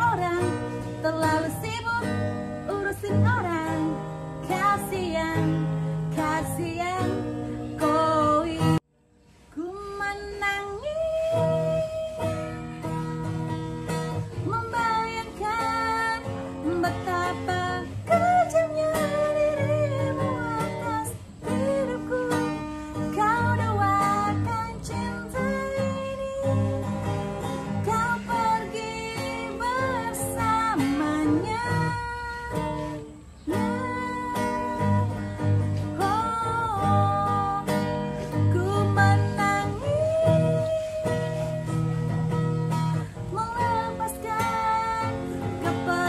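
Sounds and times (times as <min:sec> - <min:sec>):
acoustic guitar strumming: 0:00.0 - 0:46.0
person singing: 0:09.6 - 0:13.0, 0:14.2 - 0:26.9, 0:27.5 - 0:46.0.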